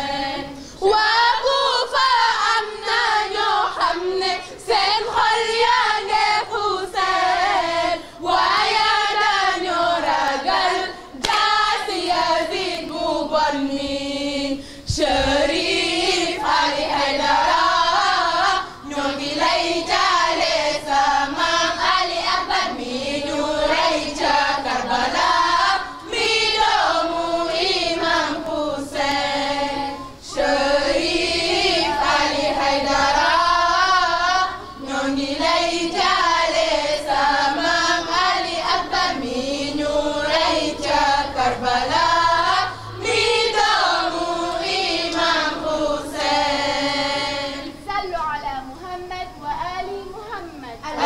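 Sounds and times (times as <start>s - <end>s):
group of voices chanting: 15.8s - 47.7s.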